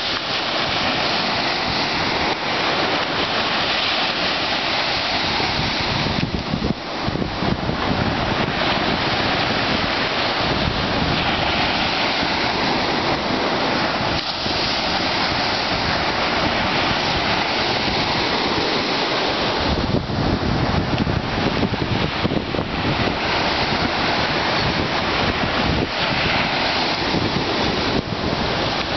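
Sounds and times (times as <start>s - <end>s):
surf breaking on beach: 0.0s - 28.9s
wind buffeting microphone: 0.0s - 28.9s.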